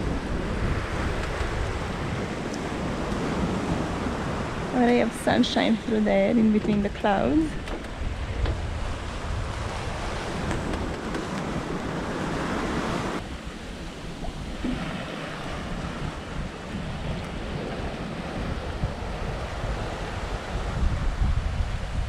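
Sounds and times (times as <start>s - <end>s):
water rushing along hull: 0.0s - 22.0s
wind buffeting microphone: 0.0s - 22.0s.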